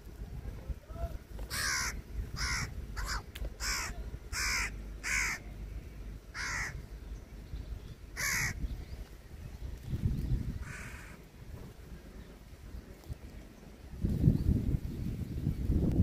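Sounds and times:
crows cawing: 1.5s - 5.5s, 6.3s - 6.8s, 8.2s - 8.6s, 10.6s - 11.2s.

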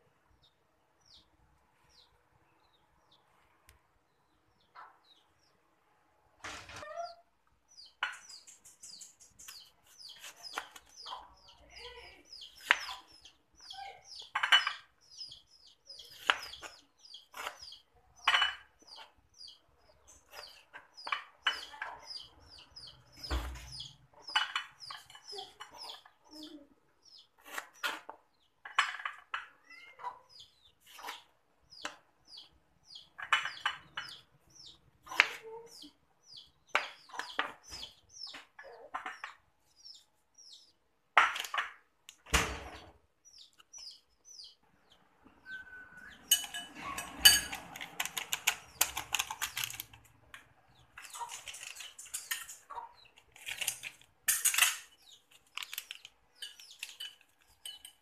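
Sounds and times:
chickens chirping: 6.5s - 41.0s, 42.6s - 58.0s
metal spoon scraping glass bowl: 46.2s - 47.7s.

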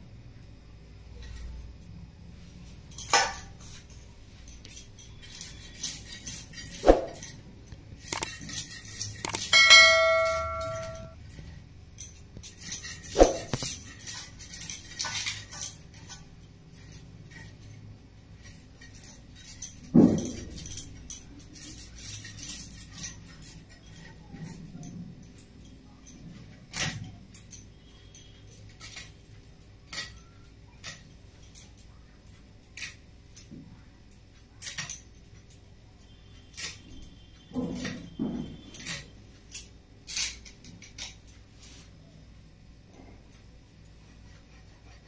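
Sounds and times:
short metallic ring: 9.3s - 11.2s.

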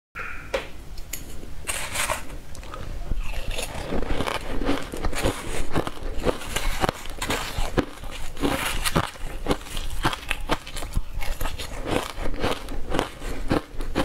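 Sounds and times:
metal spoon scraping steel bowl: 1.7s - 2.3s
crushed ice crunching: 3.2s - 13.7s.

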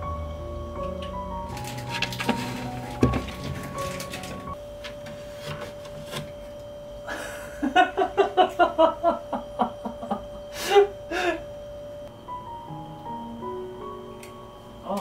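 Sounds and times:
faint steady hum: 0.0s - 15.0s
man chuckling: 7.1s - 11.4s.

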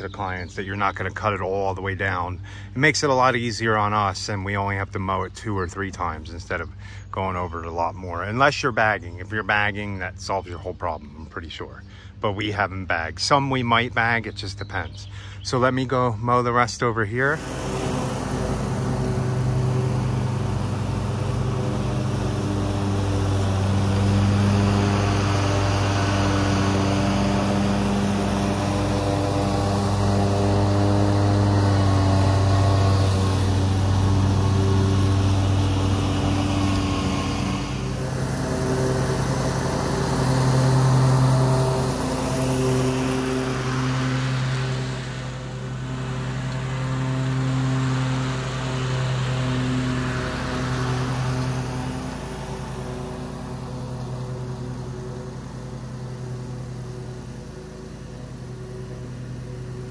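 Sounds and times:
lawn mower engine running: 17.0s - 59.9s.

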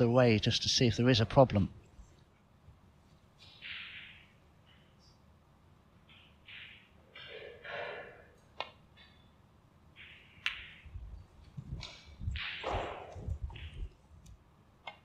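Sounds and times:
snooker balls clicking: 3.4s - 5.0s, 6.0s - 7.3s, 8.5s - 15.0s.

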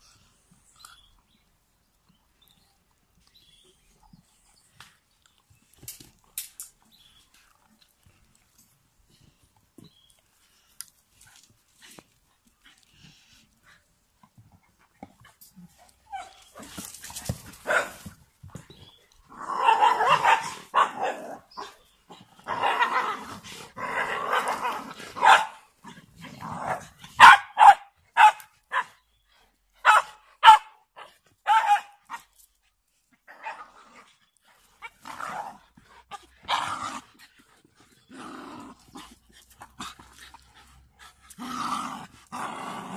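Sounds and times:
dogs barking sharply: 17.4s - 18.1s, 19.4s - 21.8s, 24.2s - 25.7s, 26.6s - 29.0s, 29.8s - 30.8s, 31.4s - 32.3s
dogs growling and snarling: 19.2s - 27.2s, 33.2s - 42.9s.

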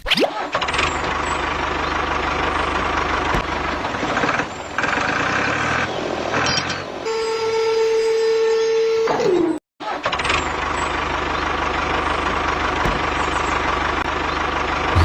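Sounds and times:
tractor engine running: 0.4s - 7.0s, 10.0s - 15.0s.

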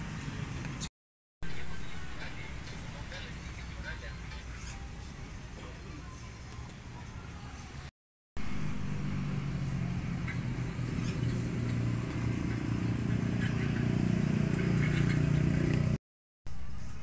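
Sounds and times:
engine humming: 8.4s - 16.0s.

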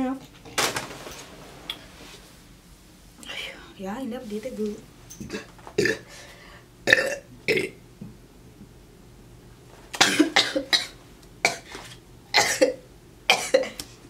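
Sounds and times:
woman burping and coughing: 5.3s - 6.0s, 6.9s - 7.8s, 10.0s - 11.7s, 12.4s - 13.8s.

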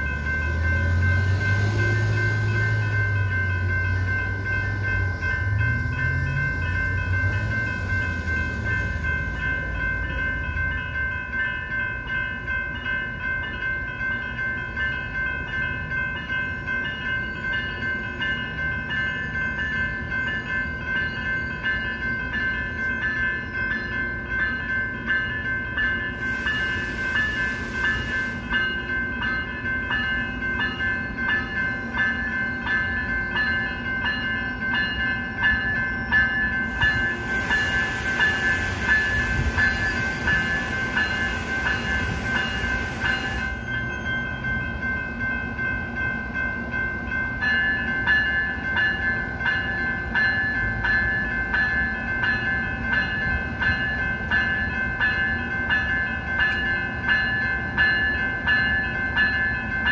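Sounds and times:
low rumble of stopped train: 0.0s - 59.9s
railroad crossing bell ringing: 0.0s - 59.9s
hiss: 26.2s - 28.5s, 36.7s - 43.6s.

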